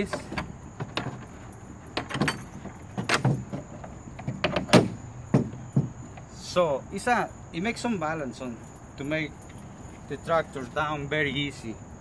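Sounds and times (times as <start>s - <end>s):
metal hinge clinking: 0.0s - 6.2s
wooden planks knocking: 0.0s - 6.3s.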